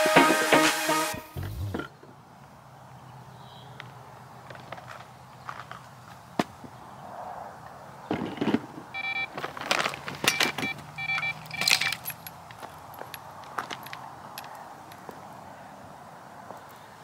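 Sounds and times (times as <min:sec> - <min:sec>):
footsteps: 0:01.1 - 0:02.0
rustling: 0:08.2 - 0:10.8
electronic bite alarm beeping: 0:09.0 - 0:09.3, 0:10.3 - 0:12.0.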